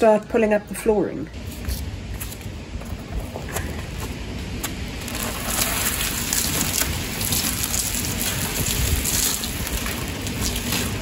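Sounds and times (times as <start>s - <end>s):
flooring dragged on gritty concrete: 5.0s - 11.0s.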